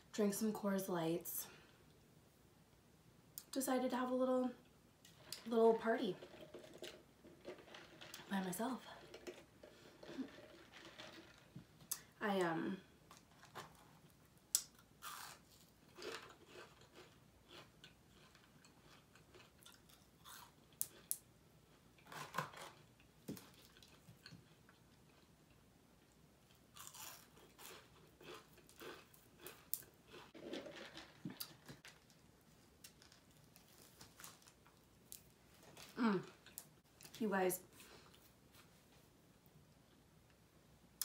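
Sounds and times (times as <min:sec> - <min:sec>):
crunchy chewing of fried food: 0:13.1 - 0:25.6, 0:26.5 - 0:36.8.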